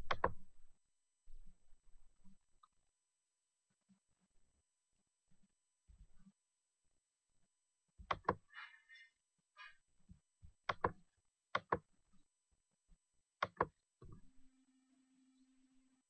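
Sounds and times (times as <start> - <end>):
computer mouse clicks: 0.0 - 0.5, 8.0 - 9.0, 10.6 - 11.9, 13.4 - 14.2.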